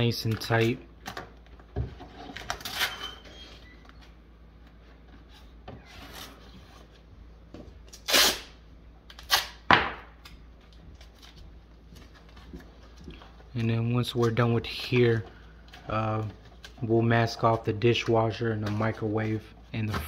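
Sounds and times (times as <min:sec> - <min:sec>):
masking tape ripping: 0:07.9 - 0:09.6.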